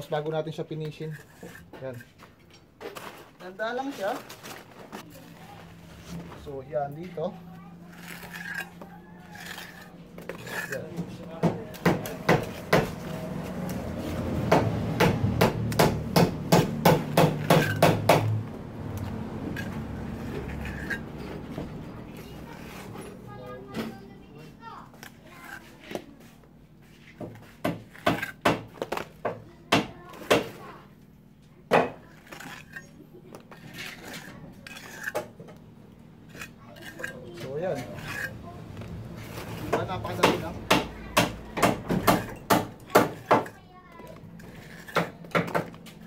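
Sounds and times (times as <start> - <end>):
trowel scraping mortar: 0.0 - 6.2, 7.8 - 14.3, 16.6 - 18.2, 18.9 - 23.5, 24.8 - 29.2, 31.9 - 35.6, 36.2 - 41.2, 41.9 - 46.0
trowel tapping wet mortar: 9.4 - 13.0, 14.6 - 18.4, 39.6 - 43.6.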